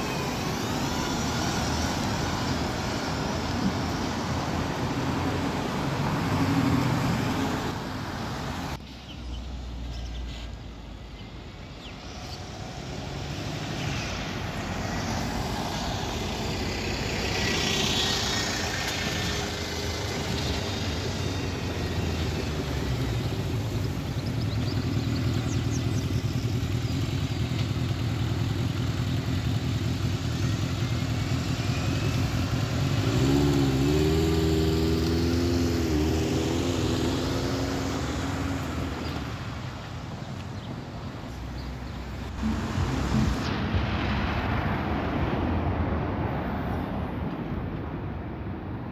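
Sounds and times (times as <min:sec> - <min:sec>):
road traffic: 0:00.0 - 0:48.9
bus engine running: 0:14.4 - 0:45.8.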